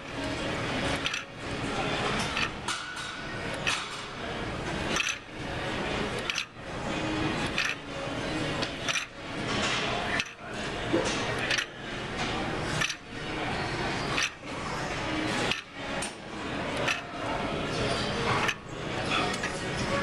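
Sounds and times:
machine lever clacking: 2.2 - 3.9, 4.9 - 5.3, 7.4 - 7.8, 8.6 - 9.2.

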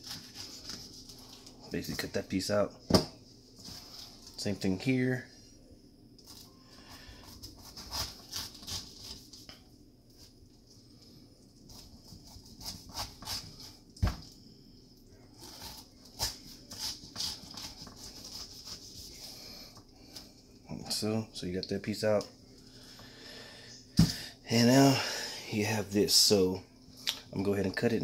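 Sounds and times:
knife slicing pineapple: 0.0 - 1.0, 7.2 - 9.5, 11.7 - 14.2, 15.4 - 19.5.

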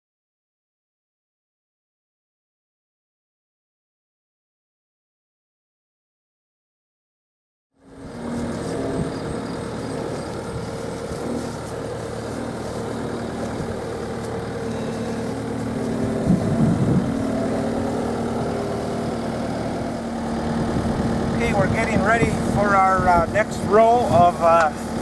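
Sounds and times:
diesel engine running: 7.8 - 25.0.

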